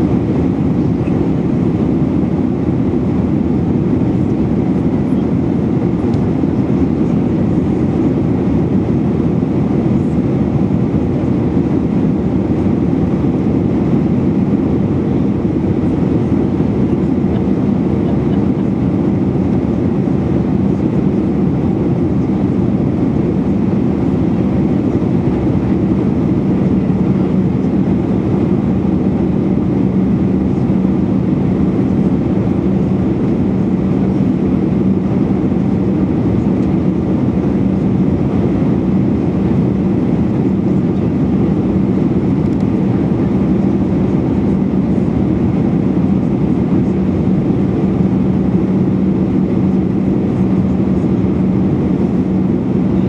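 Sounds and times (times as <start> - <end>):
jet engines rushing: 0.0 - 53.0
low cabin hum: 0.0 - 53.0.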